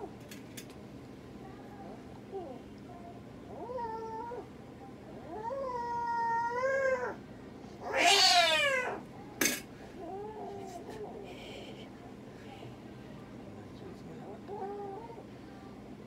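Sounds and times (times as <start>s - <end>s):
cat meowing and yowling: 5.3s - 7.2s, 7.8s - 9.0s.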